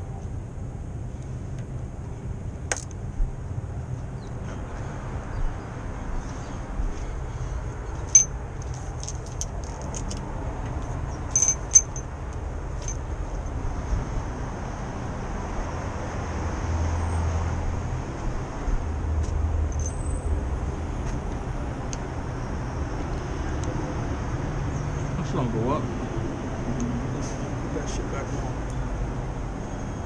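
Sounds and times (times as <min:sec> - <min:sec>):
street traffic rumble: 0:00.0 - 0:30.0
metal clinks of hand tools: 0:08.1 - 0:10.2, 0:11.3 - 0:12.0, 0:19.7 - 0:20.0.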